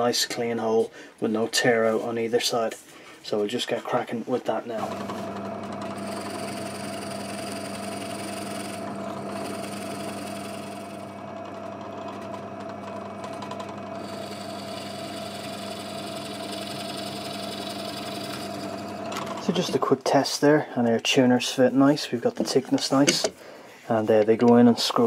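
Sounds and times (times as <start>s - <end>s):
drill press boring wood: 4.8s - 19.8s.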